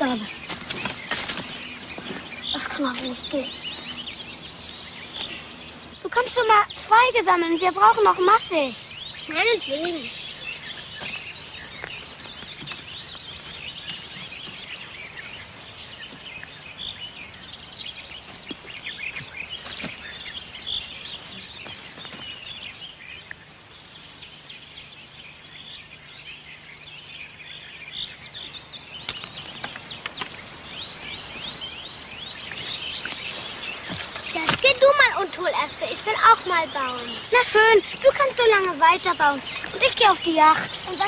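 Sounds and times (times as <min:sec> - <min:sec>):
birds chirping and trilling: 0:00.0 - 0:41.0.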